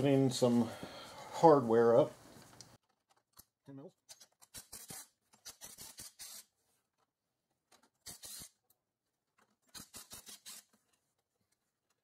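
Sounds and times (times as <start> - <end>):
cordless driver scratchy bursts: 8.0 - 8.6, 9.7 - 10.7.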